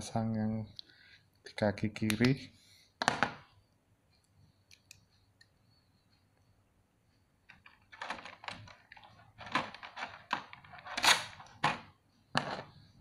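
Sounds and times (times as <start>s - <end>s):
hard plastic clicking and rustling: 7.5s - 12.6s.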